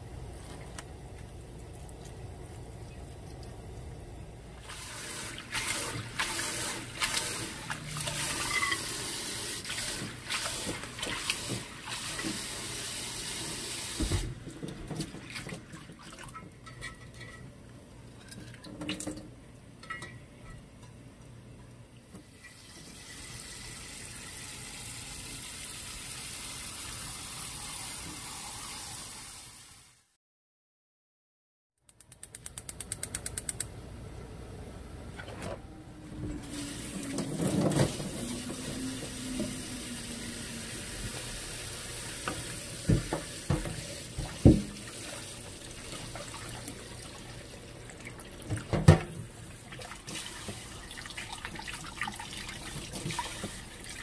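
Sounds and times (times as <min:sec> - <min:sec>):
tap running into sink: 0:13.9 - 0:15.6, 0:42.2 - 0:44.8.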